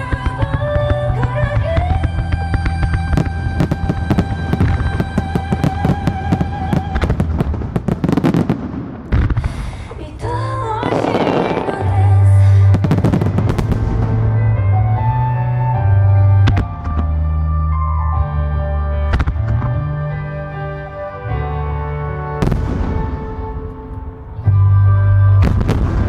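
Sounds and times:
music playing: 0:00.0 - 0:08.5, 0:10.0 - 0:26.0
fireworks bursting and crackling: 0:00.0 - 0:14.5, 0:22.4 - 0:24.2, 0:25.4 - 0:26.0.

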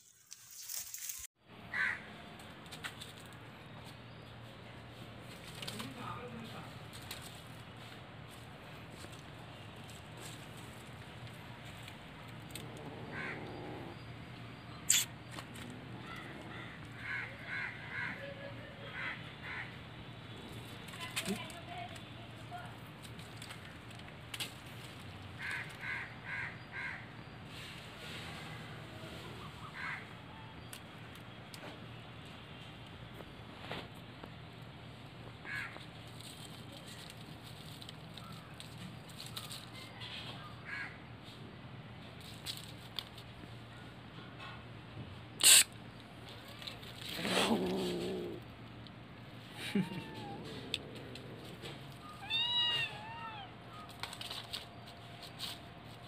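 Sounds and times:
bird calling harshly: 0:14.8 - 0:15.2, 0:45.4 - 0:45.8
short loud animal call: 0:45.4 - 0:45.7.

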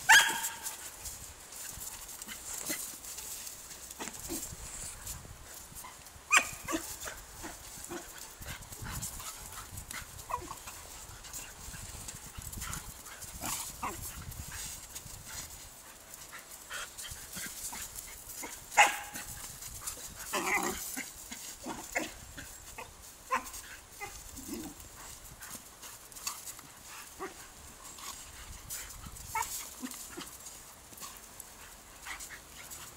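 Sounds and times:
dogs yipping and barking: 0:00.0 - 0:00.8, 0:05.8 - 0:08.2, 0:18.3 - 0:19.4, 0:20.0 - 0:25.2, 0:27.1 - 0:27.5, 0:29.1 - 0:30.6
scuffling on dirt: 0:00.0 - 0:32.9.

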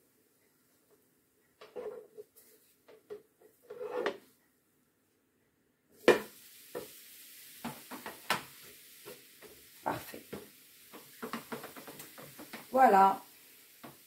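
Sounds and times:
crepe sizzling on hot plate: 0:06.0 - 0:14.0.

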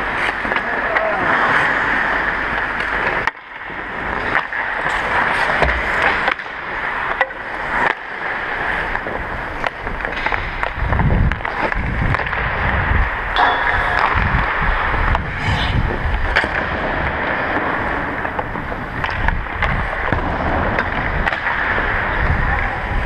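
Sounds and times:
hockey sticks hitting pucks: 0:00.0 - 0:23.0
skate blades scraping on ice: 0:00.0 - 0:23.0
low rumbling bursts: 0:09.2 - 0:23.0.

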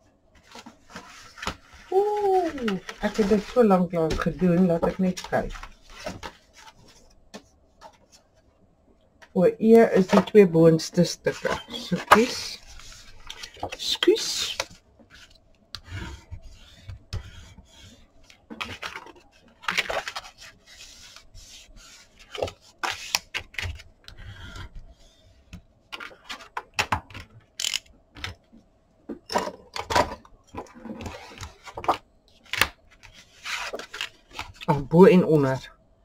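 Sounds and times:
cardboard scraping and rustling: 0:00.4 - 0:07.1, 0:30.6 - 0:34.6.

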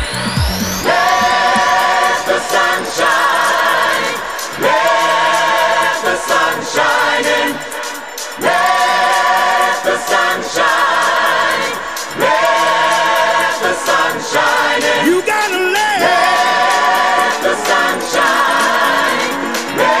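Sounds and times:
choir singing long notes: 0:00.0 - 0:20.0.

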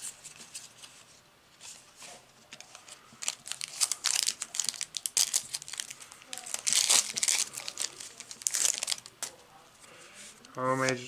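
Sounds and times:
foil wrapper crinkling: 0:02.7 - 0:09.3.

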